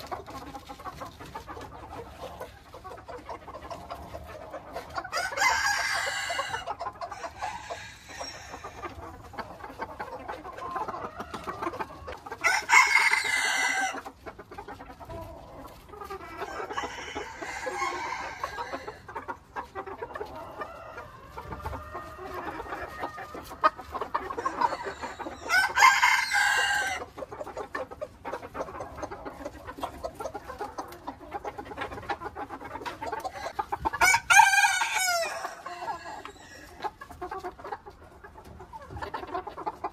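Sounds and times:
chicken clucking: 0.0 - 39.9
rooster crowing: 12.4 - 13.9, 16.5 - 18.9, 24.7 - 27.0, 34.0 - 36.5.

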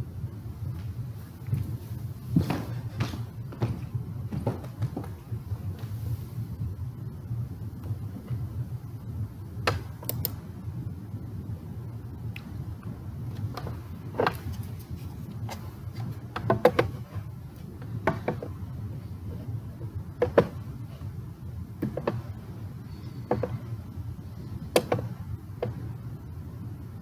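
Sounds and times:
low room hum: 0.0 - 27.0
sharp knocks and clicks: 23.2 - 23.6, 24.7 - 25.8.

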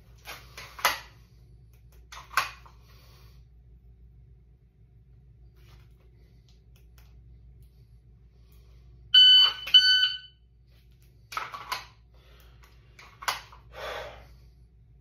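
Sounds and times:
shot timer beeping: 9.2 - 10.3.

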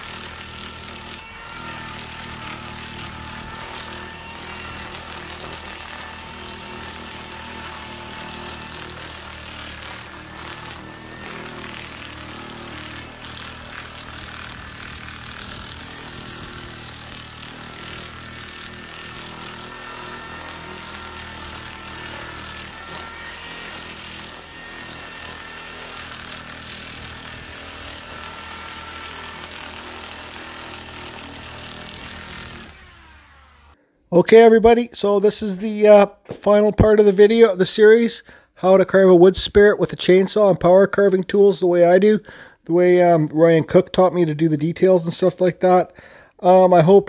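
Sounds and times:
drill motor whining: 0.0 - 33.8
sanding strips brushing wood: 0.0 - 33.8.

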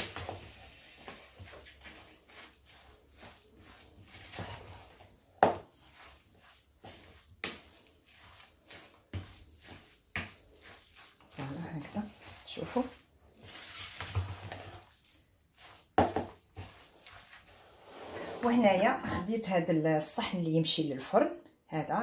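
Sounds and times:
spoon stirring in ceramic bowl: 1.0 - 17.6.

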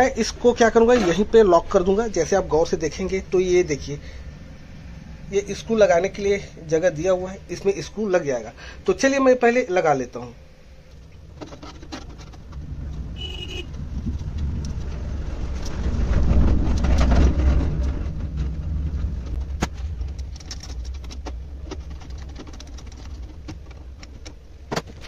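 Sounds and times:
low rumble: 0.0 - 8.1, 12.1 - 24.0
metal clicks and scrapes: 11.0 - 13.1, 13.7 - 25.0.

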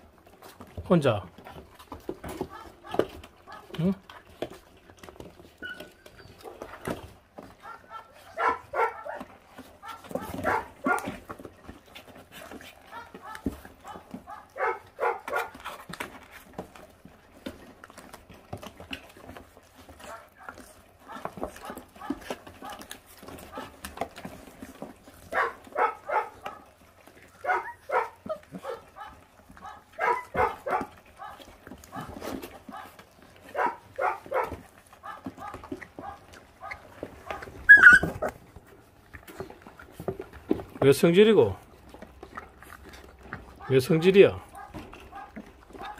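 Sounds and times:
puppies chewing and tearing meat: 0.0 - 45.9
puppy yapping: 5.2 - 7.0, 7.6 - 11.2, 12.4 - 15.8, 25.2 - 38.4, 44.5 - 45.9.

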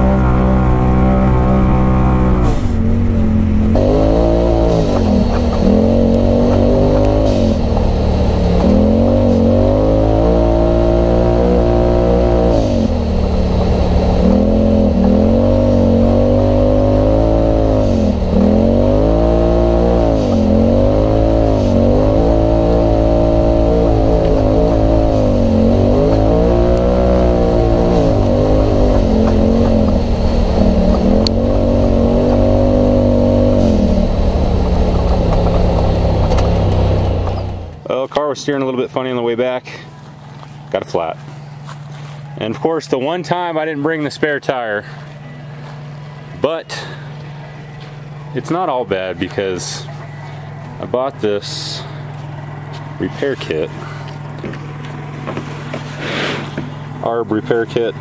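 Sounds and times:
engine revving: 0.0 - 37.9.

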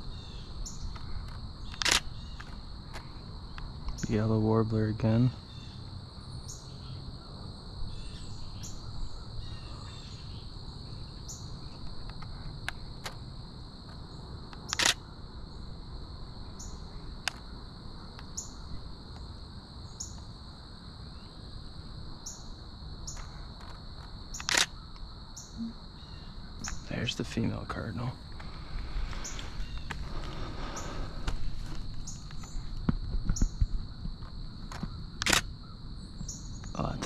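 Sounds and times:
high insect drone: 0.0 - 37.0
camera shutter double click: 1.7 - 2.1, 14.7 - 15.0, 24.4 - 24.7, 35.2 - 35.5
short high chirps: 25.6 - 25.8.

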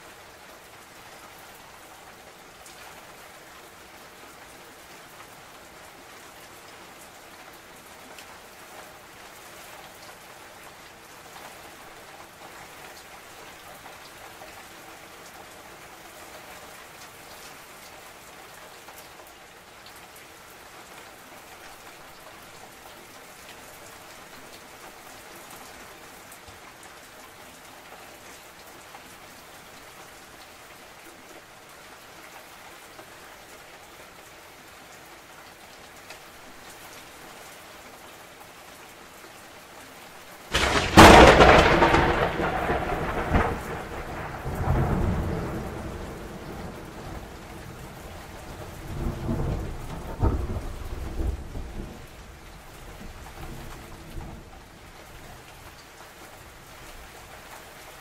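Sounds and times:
steady rain falling: 0.0 - 58.0
thunder crack and rumble: 40.5 - 47.8, 48.8 - 52.0.

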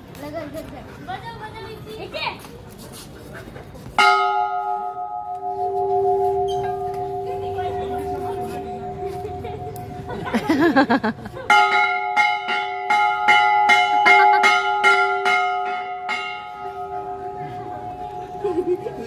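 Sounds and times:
brass bell struck by clapper: 4.0 - 10.1.

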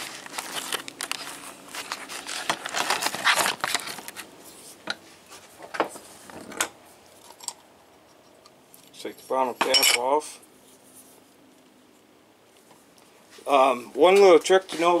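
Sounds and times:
metal tools clicking and scraping: 6.5 - 10.2.

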